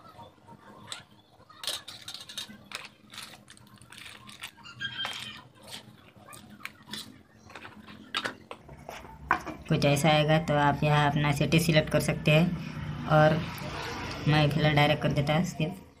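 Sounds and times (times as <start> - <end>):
clicks and rustles of packaging: 0.9 - 9.1.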